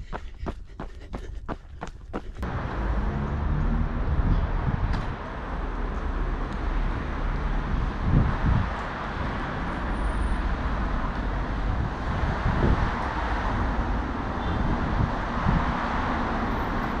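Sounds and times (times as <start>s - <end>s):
road traffic: 0.0s - 17.0s
wind on microphone: 3.8s - 5.2s, 6.9s - 9.9s, 10.6s - 16.4s.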